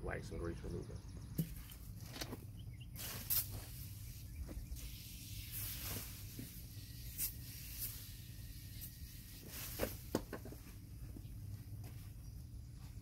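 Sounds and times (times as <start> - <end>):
aerosol can hissing: 3.0 - 10.2.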